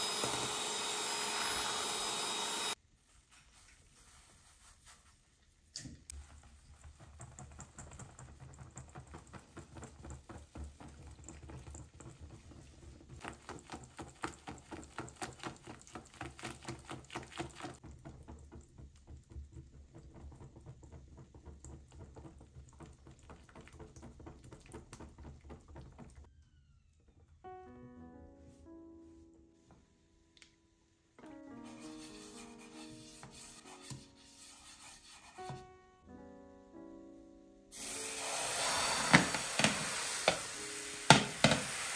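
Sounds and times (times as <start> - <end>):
piano-like background music: 27.3 - 41.9.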